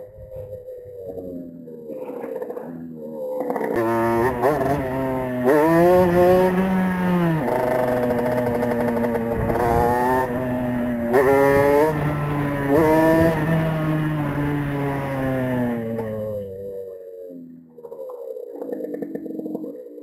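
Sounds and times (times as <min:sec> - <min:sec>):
two-stroke motorbike accelerating: 0:01.0 - 0:16.9.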